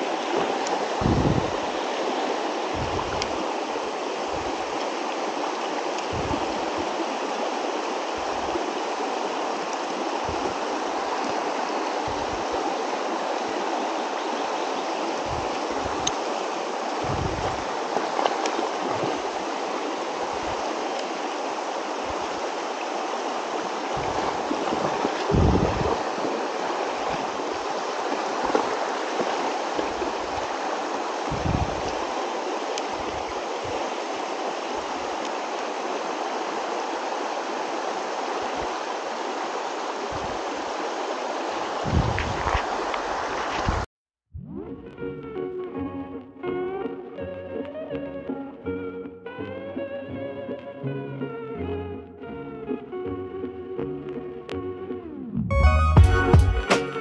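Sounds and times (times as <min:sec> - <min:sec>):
river rushing over stones: 0:00.0 - 0:43.9
low thumps: 0:00.4 - 0:01.6, 0:02.7 - 0:03.3, 0:06.1 - 0:06.6, 0:10.2 - 0:10.6, 0:12.1 - 0:12.5, 0:17.0 - 0:17.7, 0:23.9 - 0:26.3, 0:31.3 - 0:32.0, 0:41.8 - 0:42.7.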